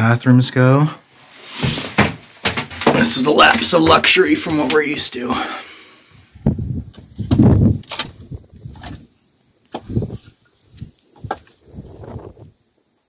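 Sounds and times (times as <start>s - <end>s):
firewood logs knocking together: 1.6s - 4.8s, 6.9s - 9.1s, 9.7s - 11.6s.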